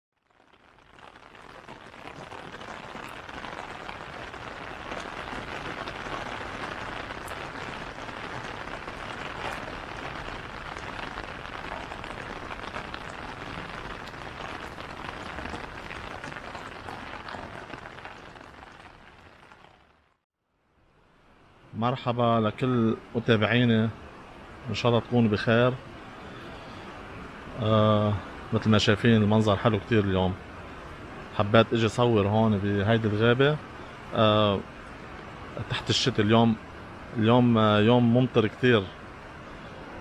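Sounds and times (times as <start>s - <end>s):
raindrops pattering on umbrella: 0.2s - 20.2s
steady rain in forest: 0.2s - 20.2s, 20.9s - 40.0s.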